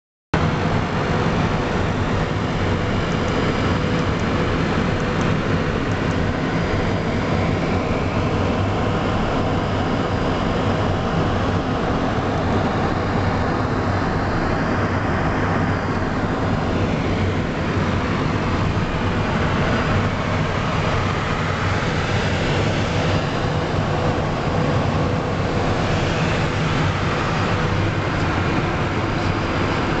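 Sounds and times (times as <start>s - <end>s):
steady hums: 0.4s - 30.0s
turbofan engine noise: 0.4s - 30.0s
jet cockpit airflow rush: 11.2s - 30.0s.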